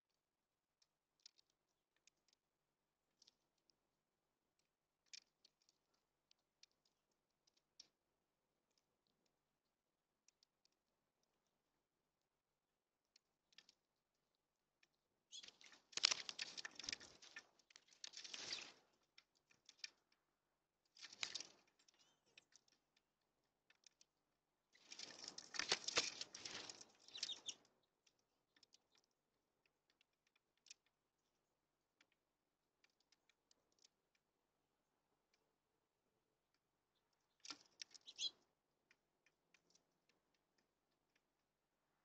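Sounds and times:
faint clicks: 0:00.8 - 0:02.5, 0:13.0 - 0:31.4, 0:36.5 - 0:41.3.

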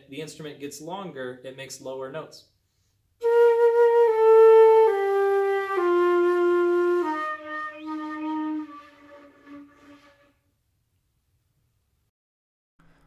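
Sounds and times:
flute playing descending scale: 0:03.2 - 0:10.4.

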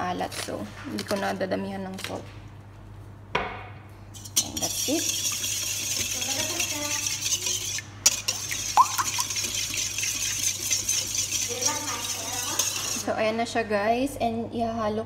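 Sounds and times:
fast whisking in metal bowl: 0:04.1 - 0:13.4
whisk knocking on metal bowl: 0:04.2 - 0:13.1.

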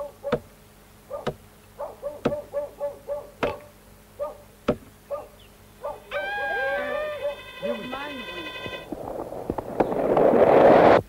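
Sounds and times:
axe chopping tree trunk: 0:00.3 - 0:00.5, 0:01.2 - 0:01.5, 0:03.4 - 0:03.7, 0:04.6 - 0:04.9
short squeaky calls: 0:05.1 - 0:08.9.

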